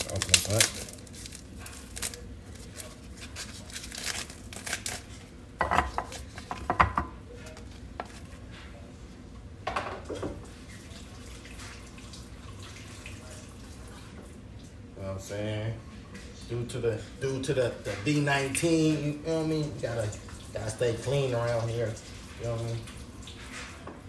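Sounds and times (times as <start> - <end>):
plastic film tearing and crinkling: 0.0 - 5.3.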